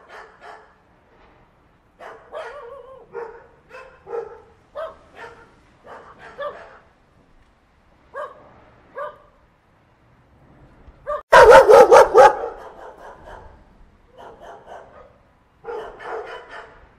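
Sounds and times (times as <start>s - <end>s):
puppy barking and yipping: 0.0s - 0.7s, 2.0s - 6.9s, 11.1s - 13.5s, 14.2s - 16.8s.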